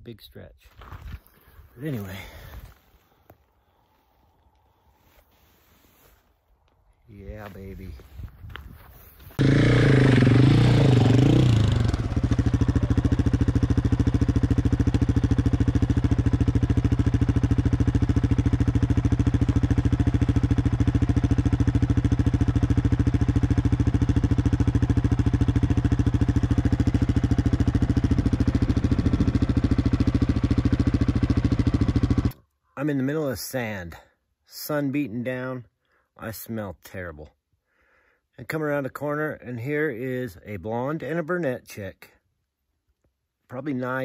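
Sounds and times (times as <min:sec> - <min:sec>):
motorcycle engine revving: 0:09.4 - 0:32.4.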